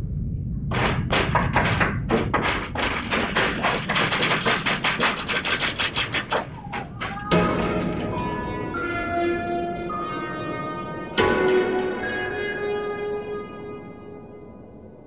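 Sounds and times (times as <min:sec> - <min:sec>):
rapid sharp thuds and knocks: 0:00.7 - 0:08.0.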